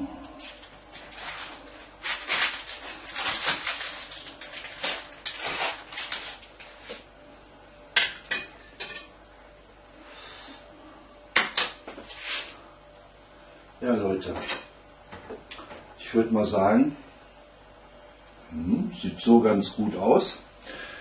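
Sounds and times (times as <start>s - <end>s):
spatula scraping baking tray: 12.0s - 12.6s.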